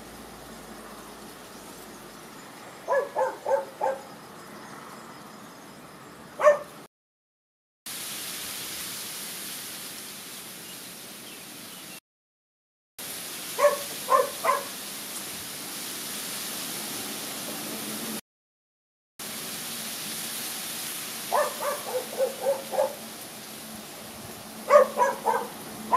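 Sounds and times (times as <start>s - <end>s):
steady hiss: 7.9s - 11.7s, 13.0s - 18.2s.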